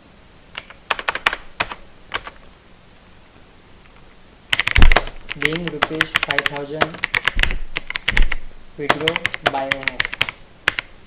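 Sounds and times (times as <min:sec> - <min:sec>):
computer keyboard keystrokes: 0:00.6 - 0:02.4, 0:04.5 - 0:10.9.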